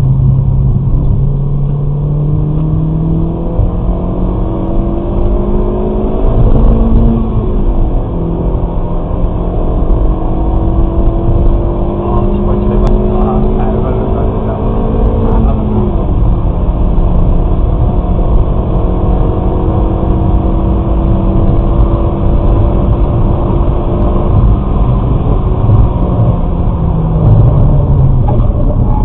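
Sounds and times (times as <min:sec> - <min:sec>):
car engine accelerating: 0:00.0 - 0:29.0
road and wind noise: 0:00.0 - 0:29.0.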